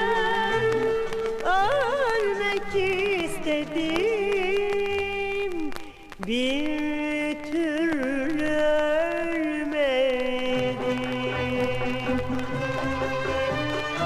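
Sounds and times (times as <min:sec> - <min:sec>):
woman singing ornamented notes: 0:00.0 - 0:12.7.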